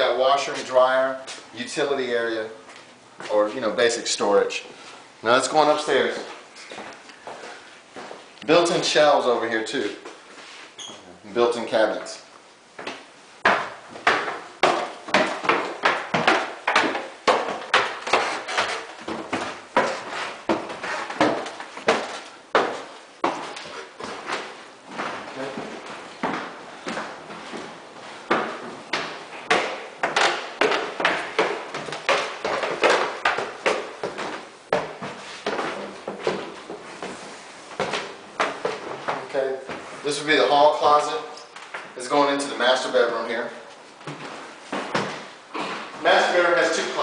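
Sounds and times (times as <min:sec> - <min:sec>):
footsteps on wooden stairs: 0:05.8 - 0:08.3, 0:12.7 - 0:42.0, 0:43.7 - 0:46.1.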